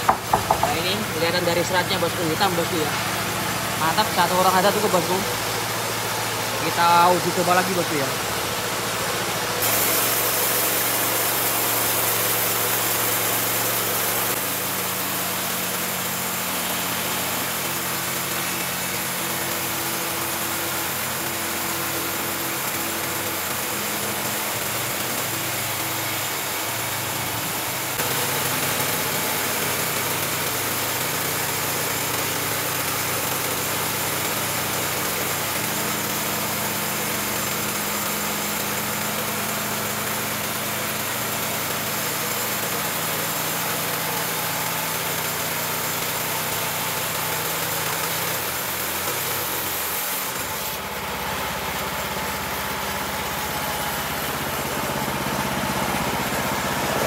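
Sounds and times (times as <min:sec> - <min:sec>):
band saw cutting log: 0:00.0 - 0:57.0
sawmill engine running: 0:00.0 - 0:57.0.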